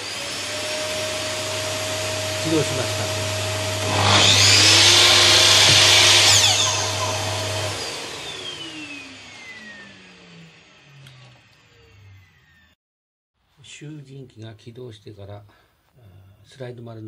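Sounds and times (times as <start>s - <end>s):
dust collector humming: 0.0s - 12.6s
miter saw motor running: 0.0s - 12.8s
saw blade coasting down whine: 0.0s - 12.8s.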